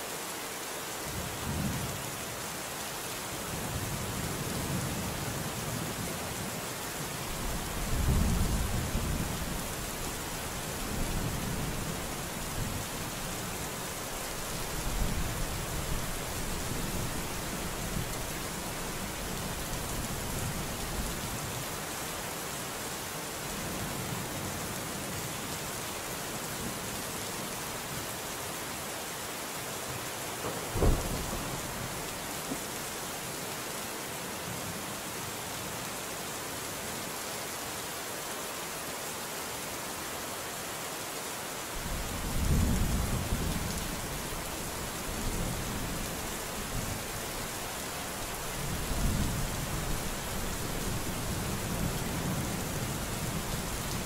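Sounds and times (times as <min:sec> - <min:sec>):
steady rain: 0:00.0 - 0:54.0
thunder rolling: 0:30.7 - 0:31.7.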